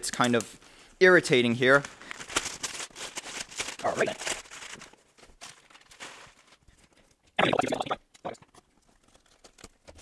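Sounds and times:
packing paper rustling: 0.1s - 7.3s, 8.5s - 10.0s
loud paper crinkle: 1.6s - 7.0s.

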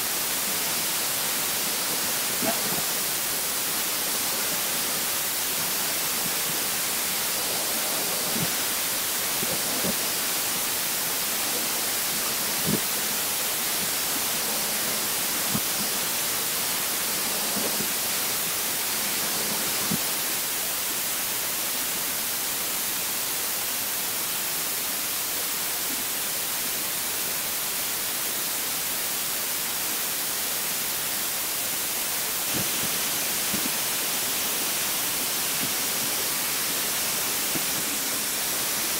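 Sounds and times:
waterjet hissing: 0.0s - 38.9s.

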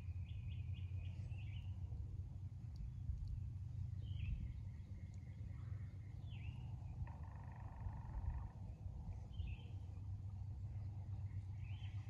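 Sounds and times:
steady low rumble: 0.0s - 12.0s
bird long low call: 2.7s - 12.0s.

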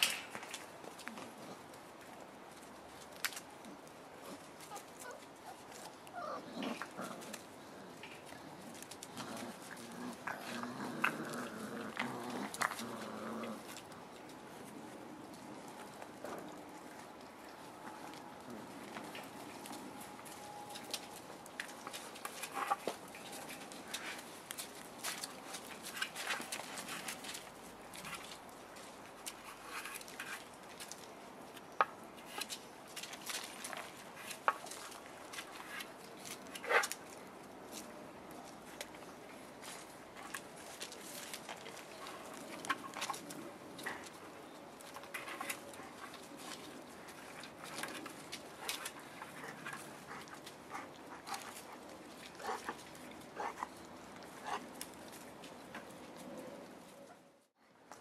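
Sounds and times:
puppies rustling and scratching: 0.0s - 58.0s
puppy whimpers: 4.7s - 6.6s.

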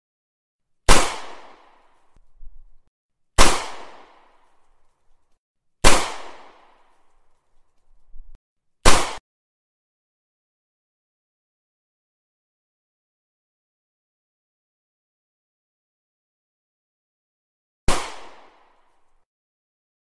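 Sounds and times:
pistol gunshots: 0.9s - 1.9s, 3.4s - 4.5s, 5.8s - 7.0s, 8.8s - 9.2s, 17.9s - 19.0s.

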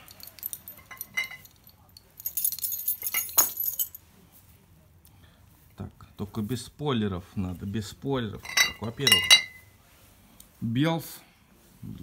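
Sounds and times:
glass bottles clinking: 0.0s - 4.0s, 8.4s - 9.6s
keys jangling: 0.0s - 4.0s.

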